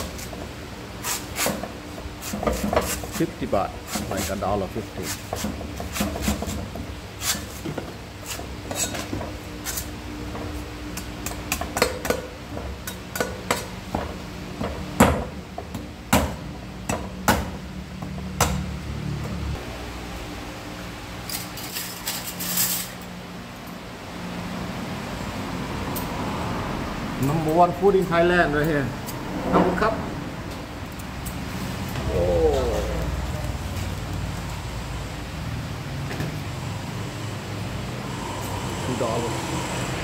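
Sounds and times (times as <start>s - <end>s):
cleaver chopping coconut on wood: 11.0s - 17.6s, 18.2s - 18.7s.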